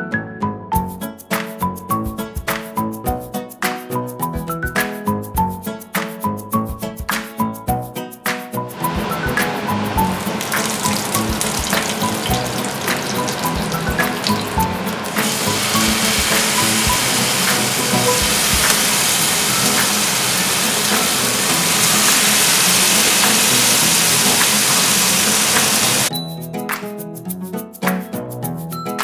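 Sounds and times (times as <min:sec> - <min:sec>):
background music: 0:00.0 - 0:29.0
leaves spitting in hot oil: 0:08.8 - 0:26.1
fish sizzling in a pan: 0:08.9 - 0:26.1.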